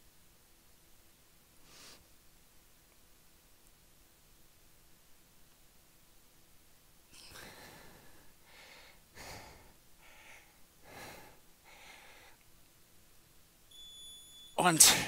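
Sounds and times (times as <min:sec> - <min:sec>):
man breathing under effort: 0:07.2 - 0:12.4.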